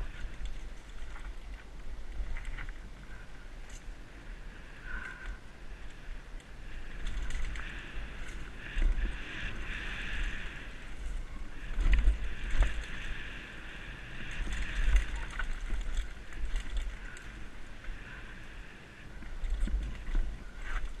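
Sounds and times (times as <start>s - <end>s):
wind rushing on microphone: 0.0s - 21.0s
bike knocking and rattling: 14.1s - 18.2s.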